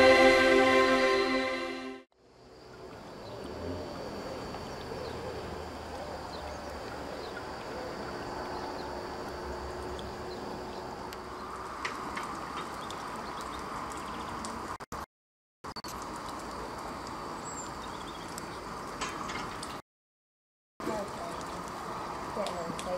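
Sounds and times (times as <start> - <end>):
railway station background noise: 0.0 - 1.8.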